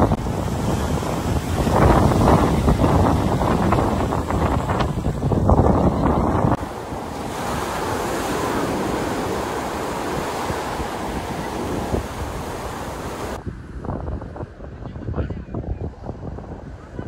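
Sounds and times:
surf breaking on beach: 0.0 - 13.4
wind buffeting microphone: 0.0 - 17.0.

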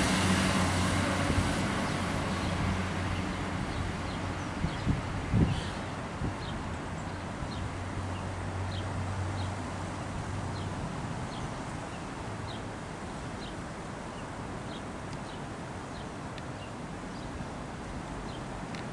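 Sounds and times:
train engine drone: 0.0 - 4.4.

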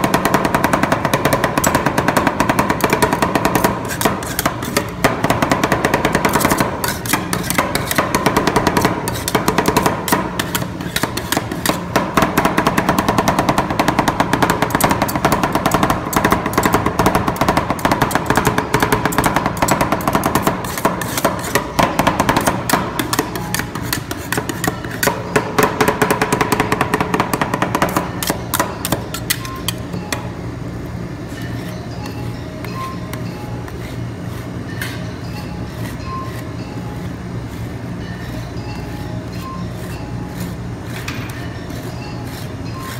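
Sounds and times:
metal spatulas chopping on plate: 0.0 - 29.9
spatula scraping: 2.8 - 12.0, 18.0 - 25.4, 27.3 - 30.0, 31.3 - 42.9.

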